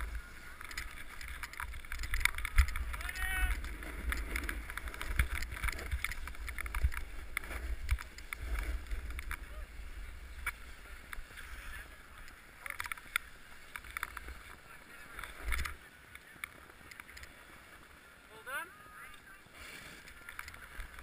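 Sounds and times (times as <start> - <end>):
snowboard scraping over snow: 0.0 - 12.6
low wind rumble on microphone: 0.0 - 14.5.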